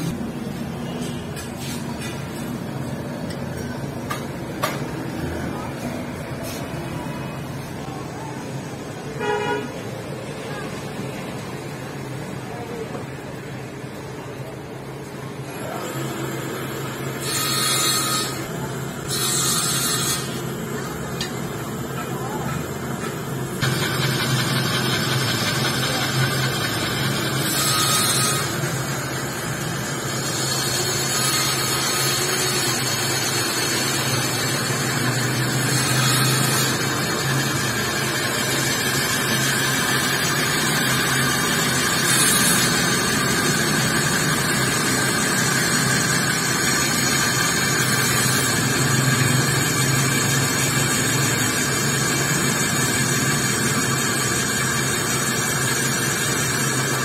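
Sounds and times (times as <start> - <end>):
drill cutting metal: 15.5 - 22.0, 23.0 - 57.0.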